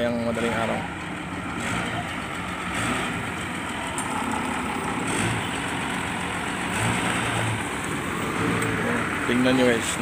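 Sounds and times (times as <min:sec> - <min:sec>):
truck engines idling: 0:00.0 - 0:10.0.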